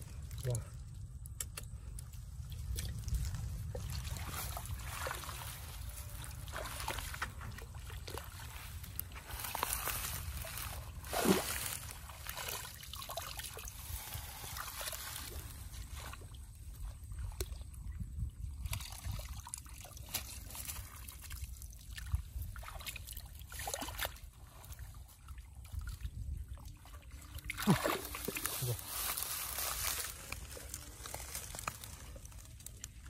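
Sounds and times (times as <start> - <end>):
muddy water sloshing: 2.0 - 33.0
water splash: 9.4 - 13.8, 27.4 - 28.6.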